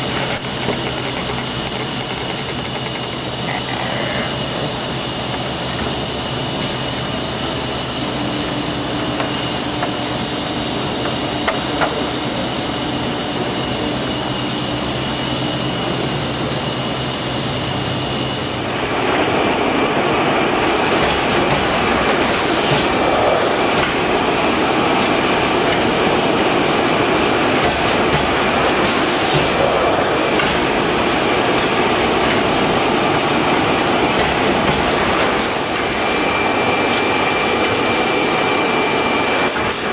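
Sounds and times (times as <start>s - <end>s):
bag making machine humming: 0.0s - 39.9s.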